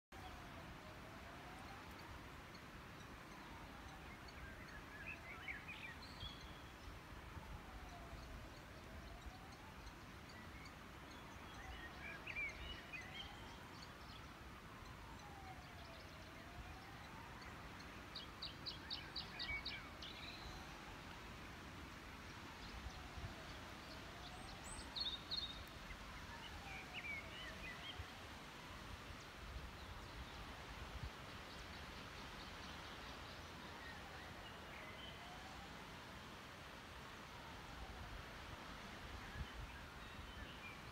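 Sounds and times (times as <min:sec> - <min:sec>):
steady outdoor hush: 0:00.1 - 0:40.9
small birds chirping: 0:22.3 - 0:28.1.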